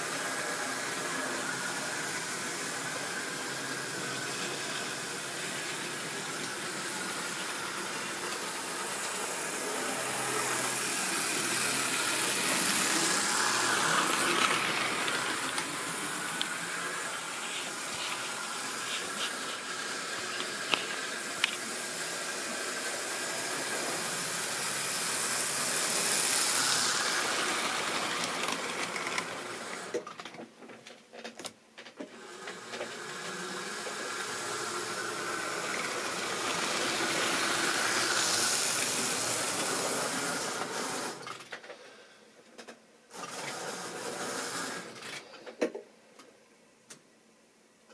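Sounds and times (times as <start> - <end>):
model trains rushing hiss: 0.0 - 30.0, 32.2 - 42.1, 43.1 - 45.4.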